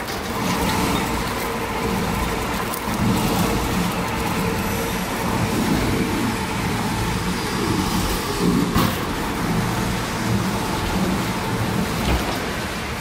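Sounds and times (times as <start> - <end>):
machine grinding bark off log: 0.0 - 13.0.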